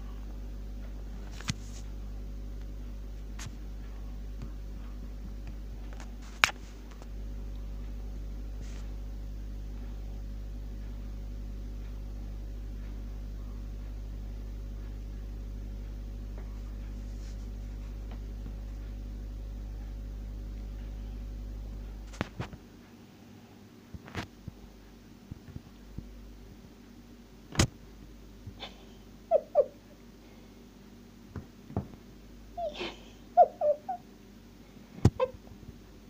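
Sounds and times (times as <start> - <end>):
steady low hum: 0.0 - 36.0
sharp click: 27.5 - 27.8.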